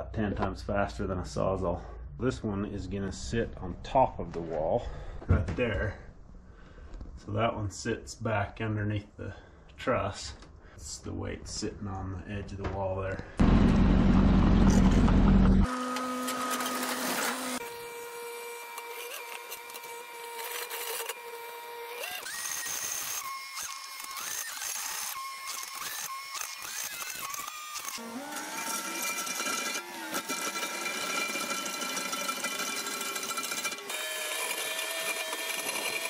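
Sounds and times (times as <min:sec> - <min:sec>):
loud low rumble: 0:13.4 - 0:15.6
hydraulic auger whine: 0:13.4 - 0:36.0.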